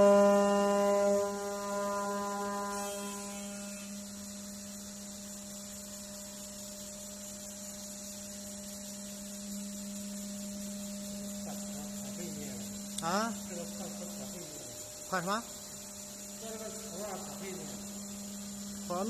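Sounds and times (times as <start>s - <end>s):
wood router humming: 0.0s - 3.9s.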